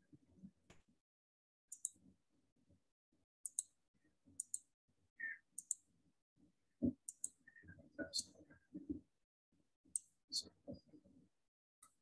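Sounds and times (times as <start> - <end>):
computer mouse clicks: 1.7 - 2.0, 3.4 - 3.7, 4.4 - 4.7, 5.6 - 5.8, 7.0 - 7.4.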